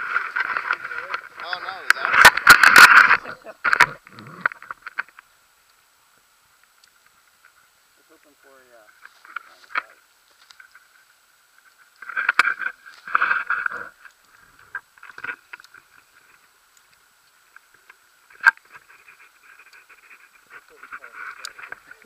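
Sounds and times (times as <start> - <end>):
rustling and scraping of gear: 0.0 - 5.2, 8.8 - 16.6, 17.5 - 22.0.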